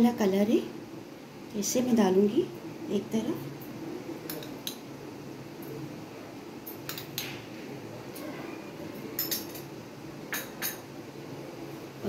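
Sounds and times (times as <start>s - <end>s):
low steady hum: 0.0s - 12.0s
kitchenware clinking: 9.0s - 9.7s, 10.3s - 10.9s.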